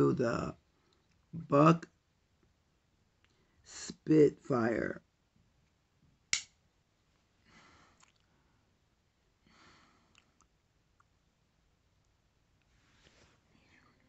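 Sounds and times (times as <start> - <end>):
faint breaths: 7.3 - 8.8, 9.4 - 10.4, 12.7 - 14.0.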